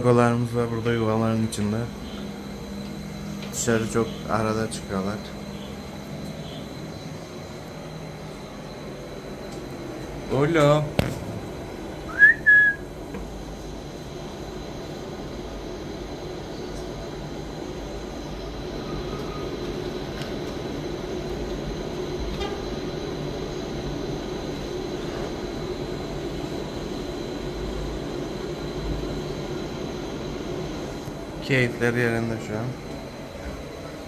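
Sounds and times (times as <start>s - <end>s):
high-pitched whine: 0.0s - 32.8s
low rumbling noise: 6.6s - 15.8s.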